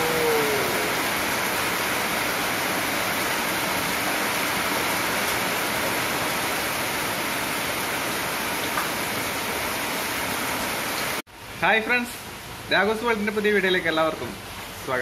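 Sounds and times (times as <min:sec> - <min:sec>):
heavy rain falling: 0:00.0 - 0:11.2
runoff pouring off roof: 0:00.0 - 0:11.2.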